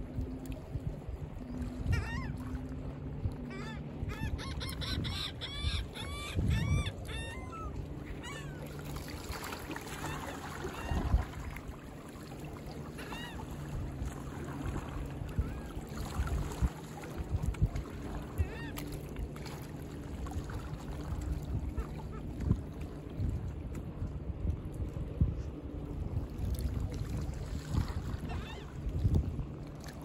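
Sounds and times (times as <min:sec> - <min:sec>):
water noise: 0:00.0 - 0:30.0
wind: 0:00.0 - 0:30.0
birds calling: 0:03.5 - 0:08.7.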